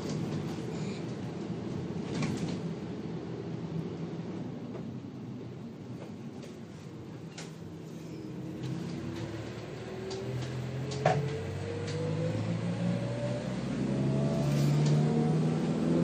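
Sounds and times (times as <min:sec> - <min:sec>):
vehicle engine accelerating: 0:08.4 - 0:16.0.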